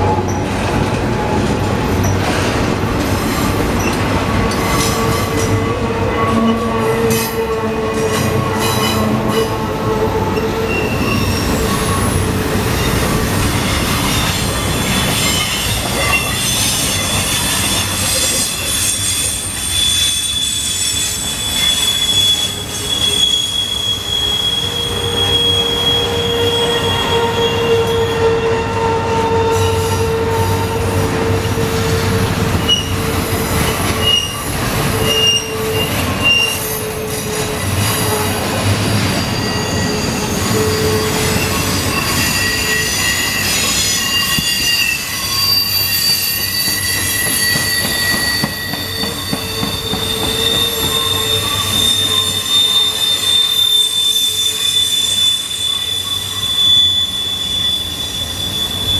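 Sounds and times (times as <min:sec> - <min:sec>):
train wheels rumbling on rail: 0:00.0 - 0:58.9
wheels squealing: 0:10.3 - 0:58.9.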